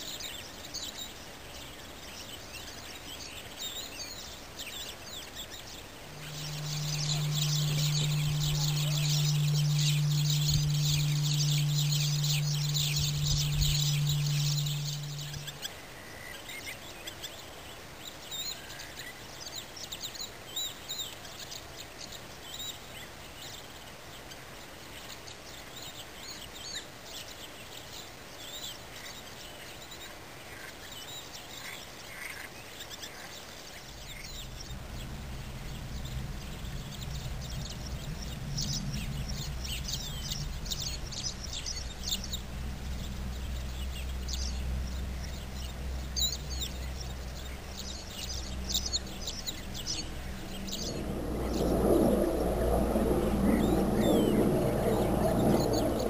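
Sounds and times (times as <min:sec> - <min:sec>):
low steady hum: 0:05.6 - 0:15.9, 0:33.9 - 0:56.0
birds chirping and calling: 0:06.2 - 0:15.7.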